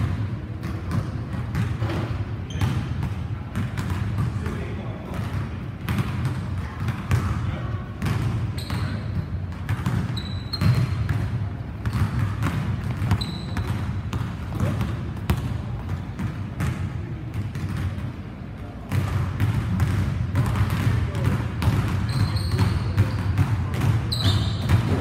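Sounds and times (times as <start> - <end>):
sneaker squeaks: 0.0 - 3.1, 8.0 - 14.9, 21.6 - 25.0
basketball bouncing on wooden floor: 0.0 - 4.5, 5.1 - 7.4, 8.0 - 18.1, 18.9 - 25.0.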